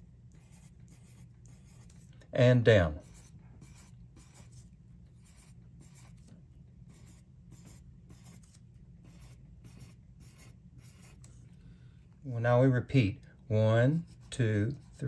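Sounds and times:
pencil scratching on paper: 0:00.3 - 0:02.1, 0:02.9 - 0:06.3, 0:06.9 - 0:11.5, 0:13.9 - 0:15.0.

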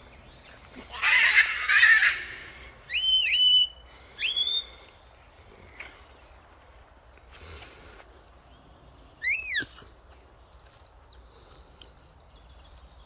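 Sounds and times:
parrot whistles rising: 0:09.2 - 0:09.7.

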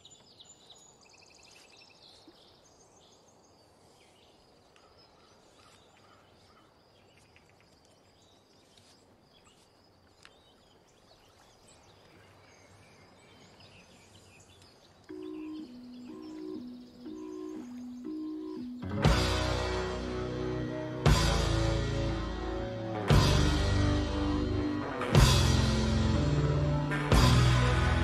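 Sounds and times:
bird chirps: 0:04.1 - 0:19.0.

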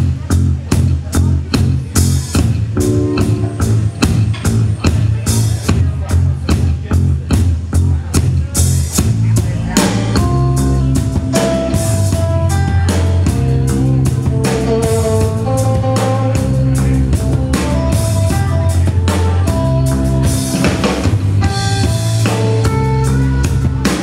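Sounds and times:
drum kit: 0:00.0 - 0:24.0
electric guitar: 0:02.6 - 0:05.4, 0:09.8 - 0:24.0.

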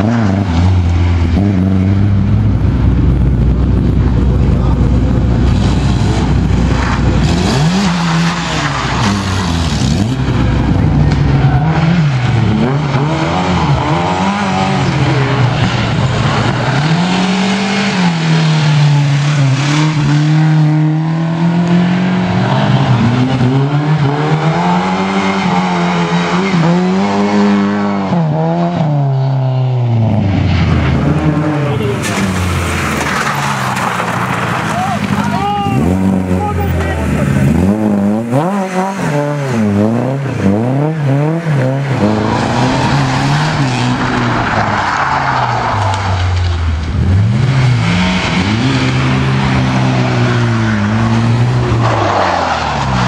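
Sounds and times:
rally car engine revving: 0:00.0 - 0:53.0.

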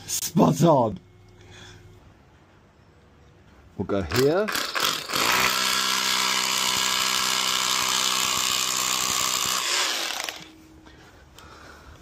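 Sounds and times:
cordless drill whining: 0:04.6 - 0:10.5.

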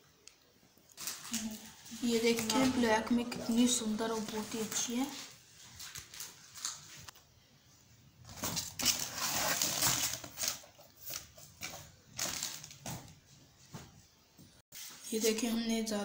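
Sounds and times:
cardboard and paper rustling: 0:01.0 - 0:07.2, 0:08.3 - 0:13.2.

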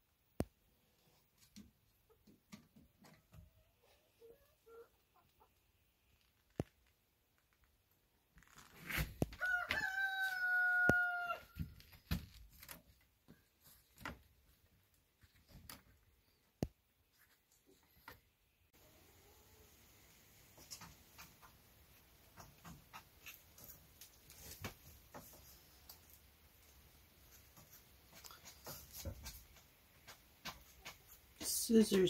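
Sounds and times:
rooster crowing: 0:09.4 - 0:11.6
sharp clicks and knocks: 0:20.5 - 0:26.0.

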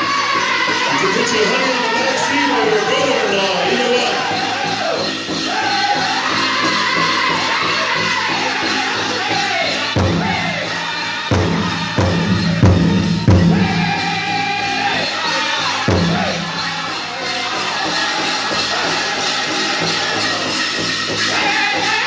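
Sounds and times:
group singing in high voices: 0:00.0 - 0:22.0
large drum strikes: 0:10.0 - 0:14.8, 0:15.9 - 0:16.8.

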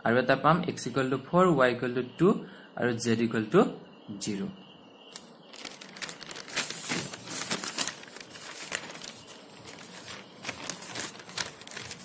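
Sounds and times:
paper rustling and crinkling: 0:05.1 - 0:12.0.

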